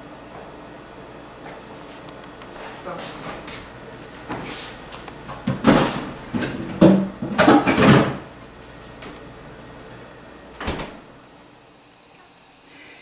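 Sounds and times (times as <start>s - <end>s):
kitchen knocks and rustles: 5.2s - 8.3s.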